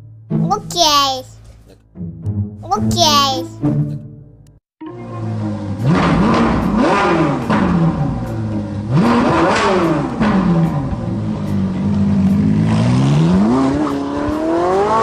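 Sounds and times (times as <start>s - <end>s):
truck engine revving: 4.9s - 15.0s.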